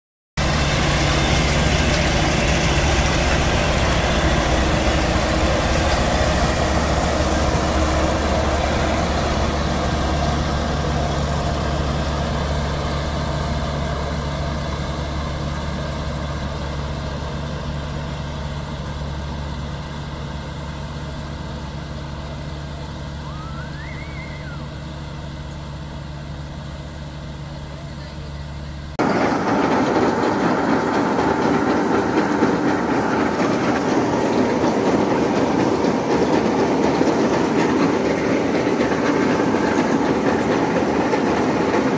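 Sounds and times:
combine harvester engine hum: 0.4s - 41.9s
faint whistle: 23.2s - 24.8s.

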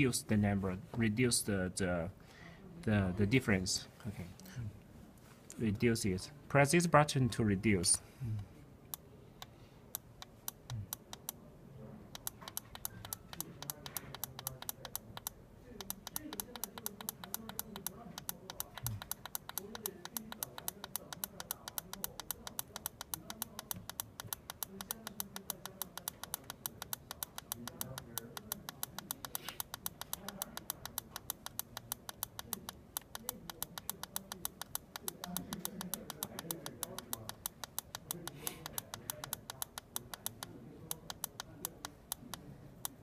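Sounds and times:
rapid button clicking: 12.1s - 43.0s.

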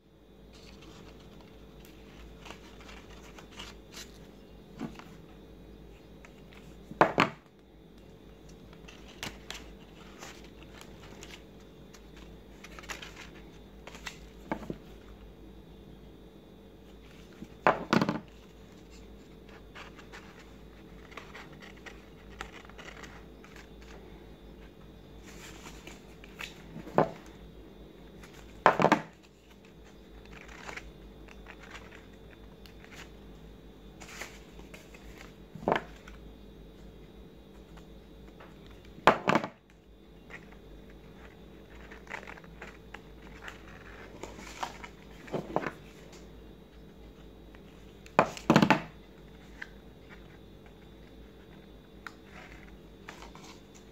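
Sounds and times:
paper petals rustling and crinkling: 0.5s - 5.4s, 8.3s - 15.0s, 16.8s - 27.4s, 28.1s - 33.2s, 34.0s - 36.2s, 40.3s - 46.3s, 52.2s - 53.9s.

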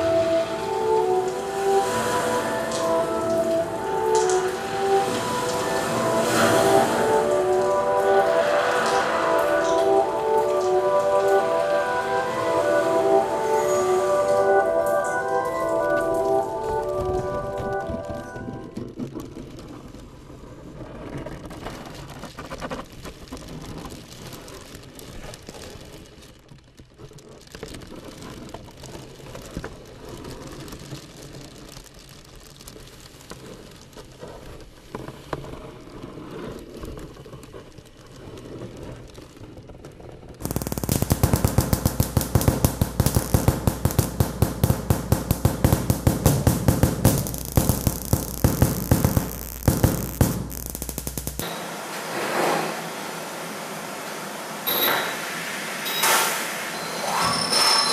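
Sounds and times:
electric swatter crackling: 2.4s - 17.0s, 40.4s - 54.7s.

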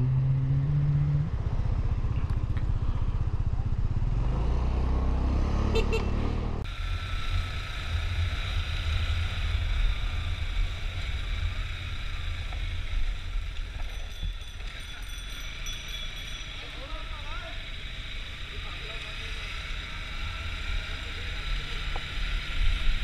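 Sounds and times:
motorcycle engine running: 0.0s - 23.0s
motorcycle riding noise: 0.0s - 23.0s.

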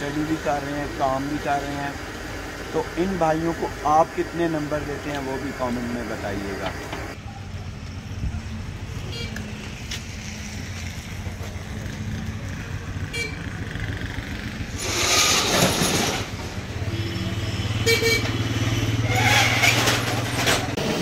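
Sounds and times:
engine hum: 0.0s - 21.0s
tyres hissing on wet road: 14.7s - 15.9s
car horn toot: 16.9s - 19.4s.

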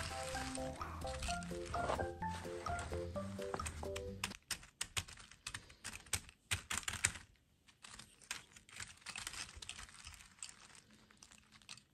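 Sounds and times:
plastic dresses rustling: 0.0s - 11.9s
plastic dolls clicking on wood: 2.8s - 11.9s.

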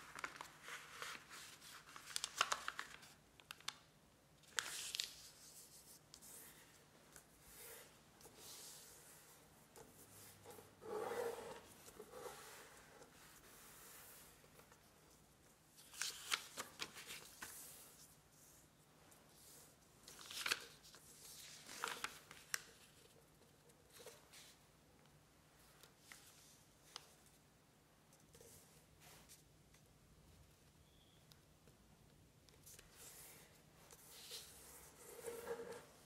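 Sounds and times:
paper rustling and sliding: 32.9s - 36.0s.

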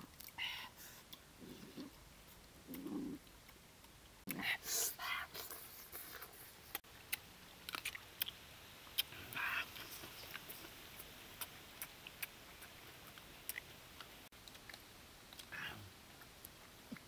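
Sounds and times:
chewing and biting food: 7.1s - 8.4s, 9.0s - 15.6s.

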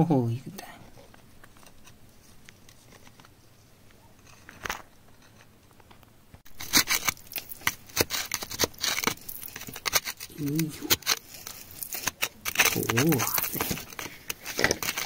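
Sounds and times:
crunchy scrapes and clicks: 0.6s - 15.0s
faint handling noise: 0.6s - 15.0s
metal tool scraping gritty soil: 6.5s - 15.0s.

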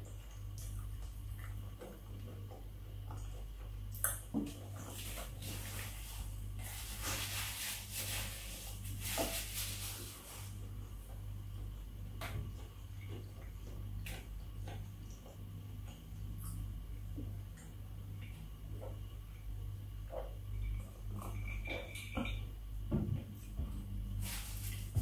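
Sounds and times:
low electrical hum: 0.0s - 25.0s
paper napkin rustling: 5.0s - 10.6s, 24.2s - 25.0s
chewing noises: 12.5s - 19.0s.

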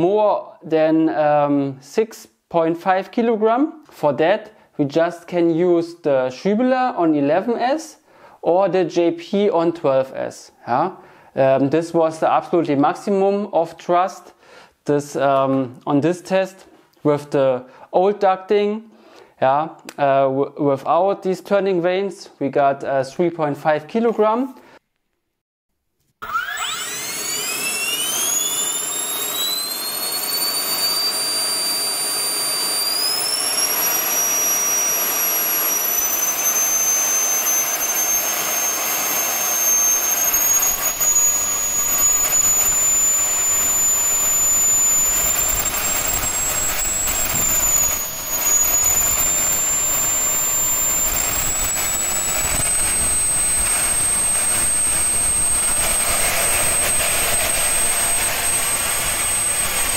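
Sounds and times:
electric fan whine: 26.4s - 59.9s.

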